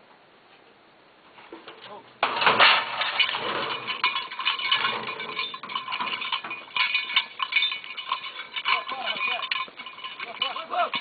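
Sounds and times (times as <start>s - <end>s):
bell clanking and jangling: 2.3s - 11.0s.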